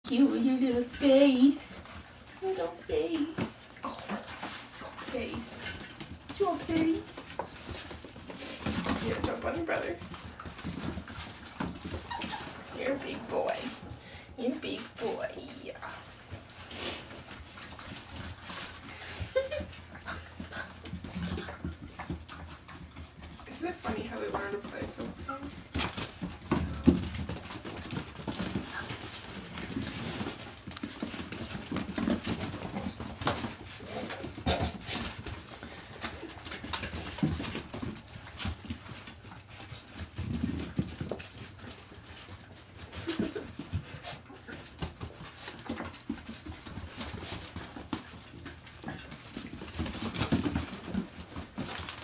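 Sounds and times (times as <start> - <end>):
puppies scuffling on straw: 0.1 - 52.0
puppy vocal sounds: 8.2 - 37.1.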